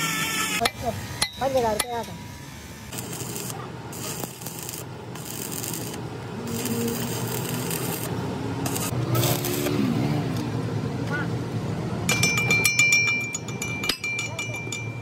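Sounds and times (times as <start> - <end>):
arc welder crackling and sizzling: 0.0 - 10.5.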